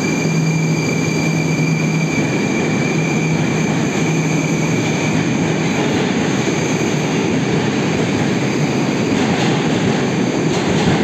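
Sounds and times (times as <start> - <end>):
train traction drive: 0.0 - 11.0
train wheels on rails: 0.0 - 11.0.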